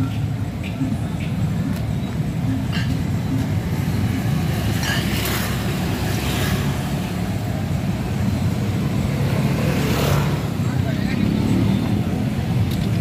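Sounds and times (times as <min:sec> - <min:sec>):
motorbikes passing: 0:00.0 - 0:13.0.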